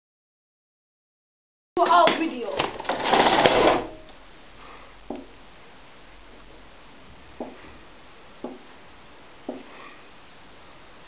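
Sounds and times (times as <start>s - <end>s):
marker tapping a whiteboard: 8.4s - 8.7s.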